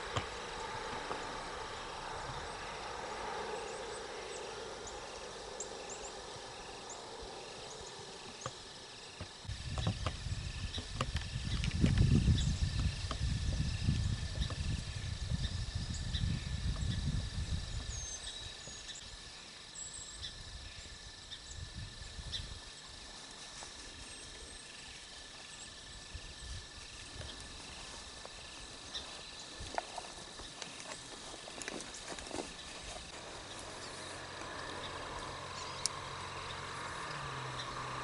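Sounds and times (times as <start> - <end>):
wind rumble on microphone: 9.4 - 18.9, 20.3 - 22.8
small clicks and rustles: 27.0 - 33.7.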